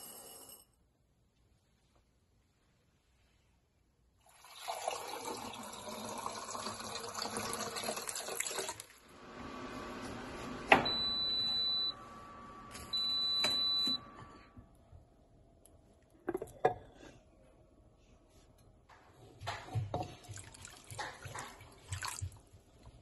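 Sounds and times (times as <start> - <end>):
long high electronic beeps: 10.8 - 14.1.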